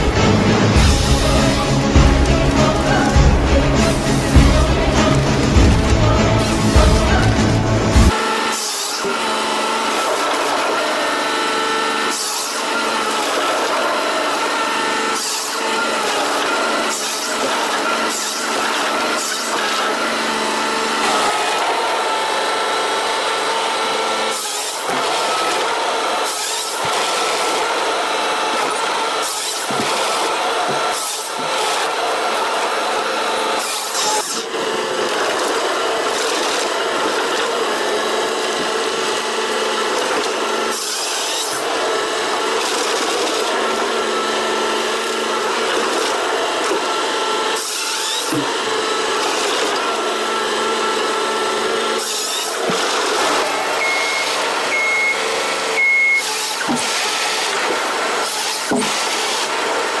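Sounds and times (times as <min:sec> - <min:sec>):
harvester engine and hydraulics: 0:00.0 - 1:00.0
harvester head cutting logs: 0:00.0 - 1:00.0
short high beeps: 0:53.8 - 0:55.2, 0:55.8 - 0:56.2.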